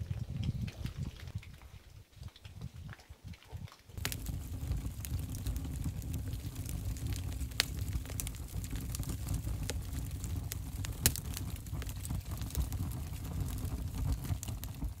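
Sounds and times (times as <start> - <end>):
stove fire crackling: 0.0 - 15.0
low steady rumble: 4.0 - 15.0.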